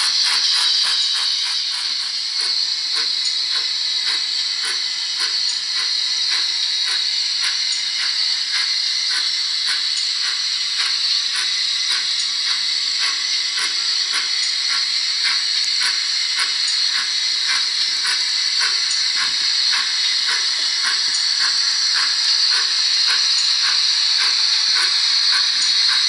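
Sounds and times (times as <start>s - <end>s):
steam exhaust chuffs: 0.0s - 26.0s
steam hiss: 0.0s - 26.0s.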